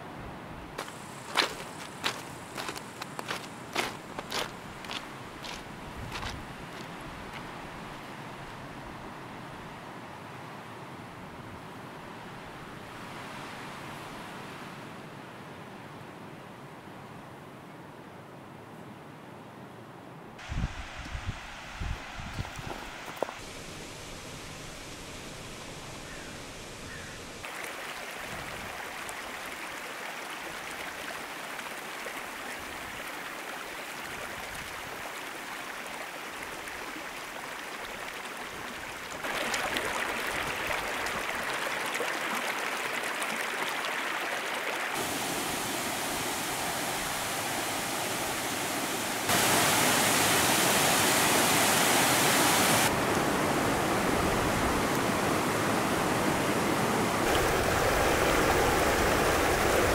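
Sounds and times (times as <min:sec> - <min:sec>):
rushing creek and waterfall: 0:00.0 - 0:15.6, 0:20.4 - 0:59.9.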